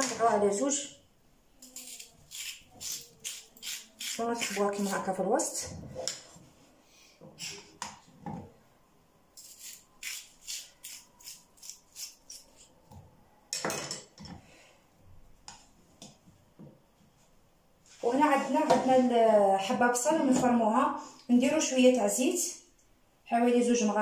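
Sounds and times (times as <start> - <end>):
knife scraping potatoes: 1.6 - 5.2, 9.4 - 12.7.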